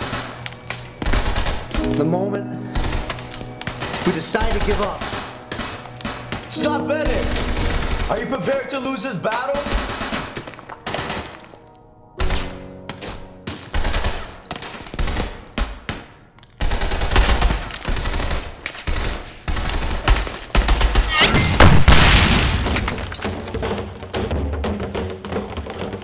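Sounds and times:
rapid gunshots: 0:00.0 - 0:00.4, 0:01.0 - 0:01.8, 0:02.7 - 0:06.3, 0:07.2 - 0:08.4, 0:09.5 - 0:11.4, 0:16.6 - 0:21.1.

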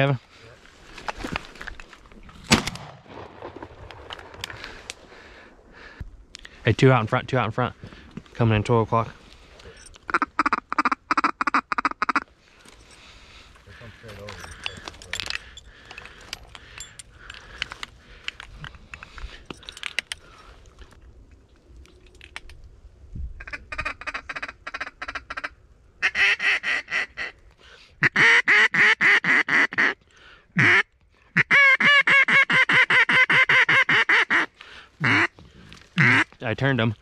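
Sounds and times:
duck call quacking: 0:10.1 - 0:12.3, 0:23.4 - 0:27.4, 0:28.0 - 0:30.0, 0:30.6 - 0:35.3, 0:36.0 - 0:36.3.

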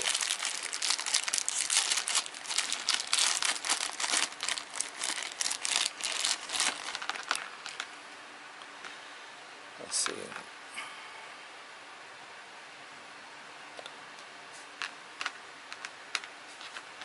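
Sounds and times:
plastic bag crinkling: 0:00.0 - 0:07.9.

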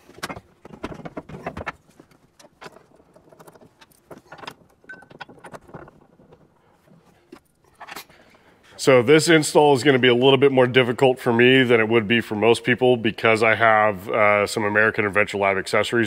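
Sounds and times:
metal bracket and bolts clinking: 0:02.4 - 0:06.0.

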